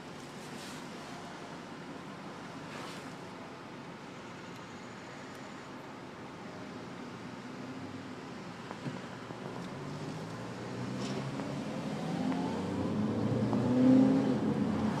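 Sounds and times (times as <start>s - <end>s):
road noise inside car: 0.0s - 15.0s
car engine revving: 9.8s - 15.0s.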